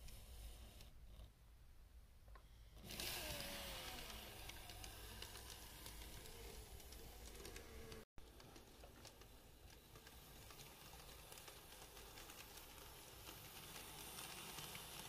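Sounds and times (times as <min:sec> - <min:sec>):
model train motor whine: 0:02.7 - 0:08.0, 0:09.0 - 0:15.0
wheels clicking on track: 0:02.8 - 0:15.0.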